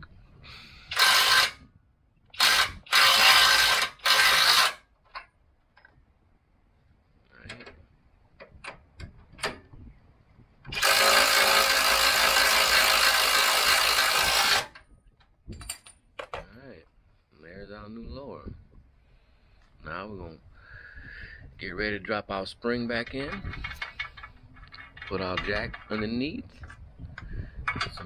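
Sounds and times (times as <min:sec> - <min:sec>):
power ratchet running: 0:00.8 - 0:01.6, 0:02.3 - 0:04.8, 0:10.7 - 0:14.8.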